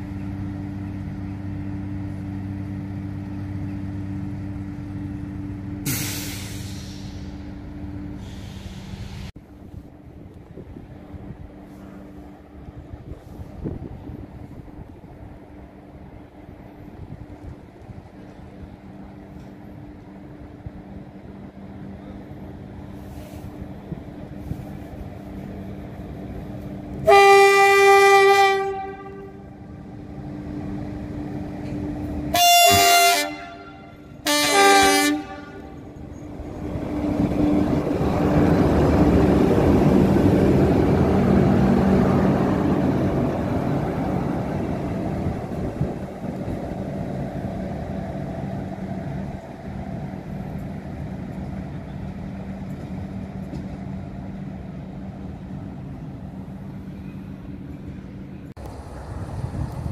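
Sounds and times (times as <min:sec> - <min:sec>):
locomotive rumbling past: 0:00.0 - 0:59.9
train horn blasts: 0:27.0 - 0:29.8, 0:32.3 - 0:35.9.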